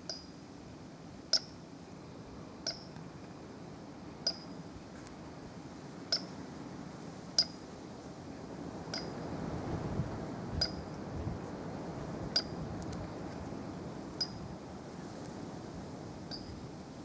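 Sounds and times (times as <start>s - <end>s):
low background hiss: 0.0s - 17.0s.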